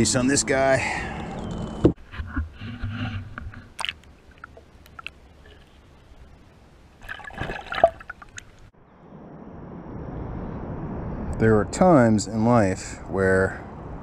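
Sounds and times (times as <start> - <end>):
muffled underwater splashing: 2.6 - 8.7.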